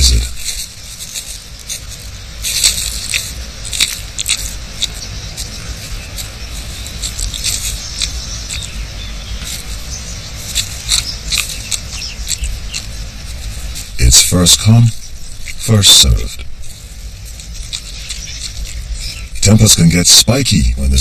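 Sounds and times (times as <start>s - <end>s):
lizard chewing fruit clicks: 2.5s - 8.8s.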